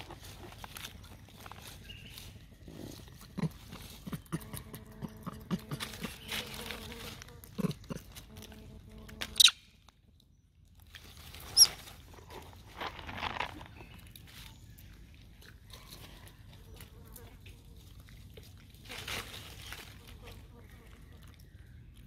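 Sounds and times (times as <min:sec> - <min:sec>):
rustling in dry leaves: 0:00.0 - 0:04.5, 0:05.3 - 0:08.8, 0:10.8 - 0:21.4
monkey chewing: 0:00.0 - 0:09.5
high-pitched monkey calls: 0:09.4 - 0:09.6.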